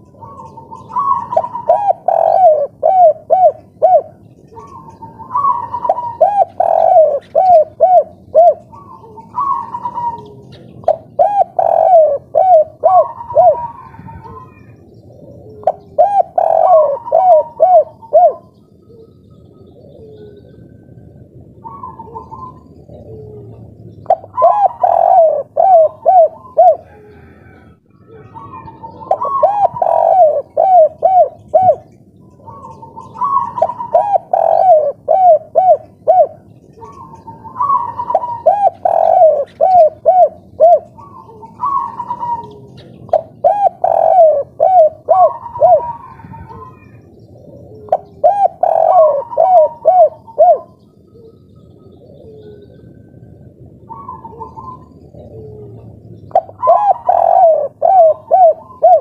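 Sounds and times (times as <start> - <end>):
dove cooing: 0.0 - 59.0.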